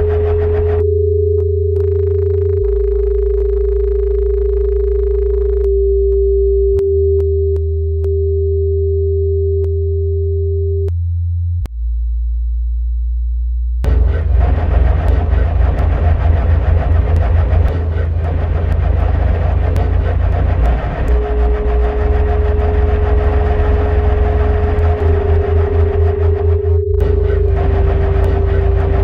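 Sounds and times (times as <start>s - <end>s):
deep bass drones: 0.0s - 29.0s
steady pure tone: 0.0s - 29.0s
dense fluttering noise: 13.9s - 29.0s
sharp clicks: 13.9s - 29.0s.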